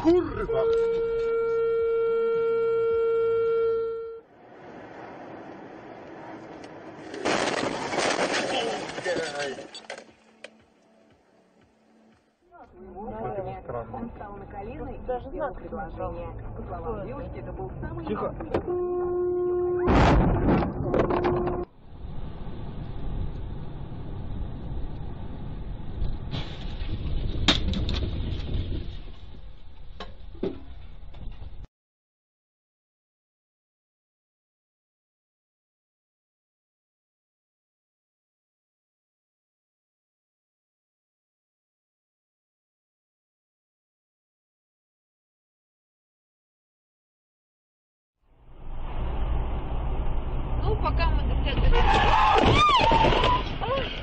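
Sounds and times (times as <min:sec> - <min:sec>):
car horn blast: 0:00.4 - 0:04.2, 0:18.6 - 0:20.2, 0:20.8 - 0:21.7
road noise of moving car: 0:04.2 - 0:31.6, 0:48.2 - 0:54.0.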